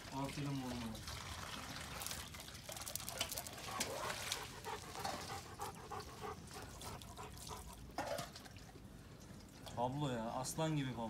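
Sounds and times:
dog panting: 3.6s - 7.8s.

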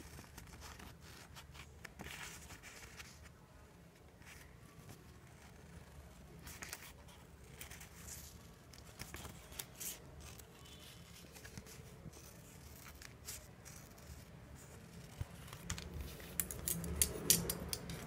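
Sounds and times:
paper rustling: 4.1s - 16.5s.

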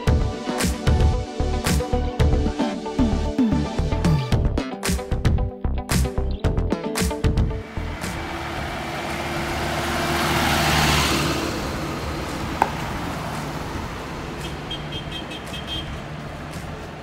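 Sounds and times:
road traffic rumble: 6.5s - 17.0s
car driving past: 7.6s - 17.0s.

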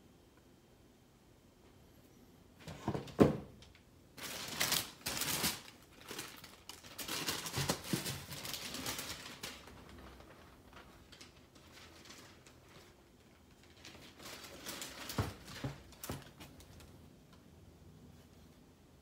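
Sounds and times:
paper and plastic bag rustling: 4.1s - 17.1s.

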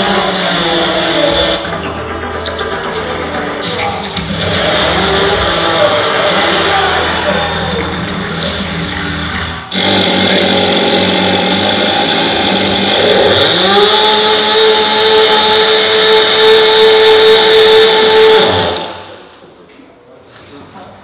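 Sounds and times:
chainsaw revving: 9.7s - 19.3s.

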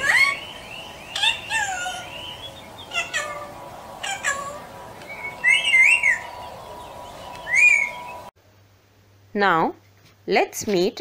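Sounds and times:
parrot warbling whistled call: 0.0s - 2.1s, 2.9s - 6.3s, 7.4s - 8.0s
parrot squawking: 0.0s - 6.4s.

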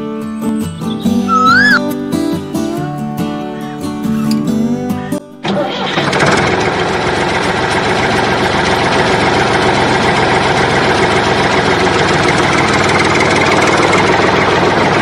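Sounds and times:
tractor engine idling: 5.4s - 15.0s.

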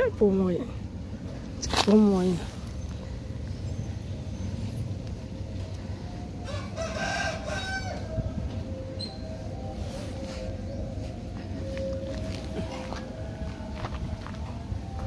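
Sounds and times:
rooster crowing: 6.4s - 8.4s.

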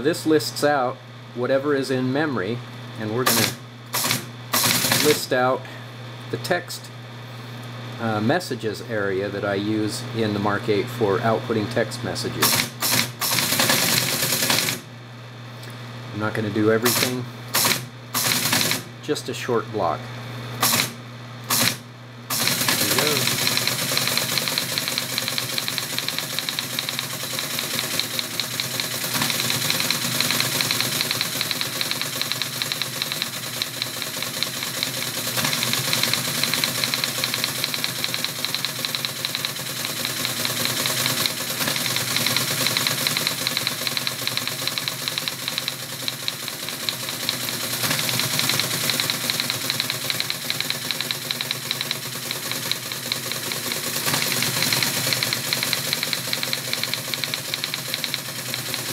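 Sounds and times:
motor hum: 0.0s - 58.9s
teletype printing clatter: 3.2s - 5.4s, 12.4s - 14.9s, 16.8s - 18.9s, 20.6s - 58.9s.

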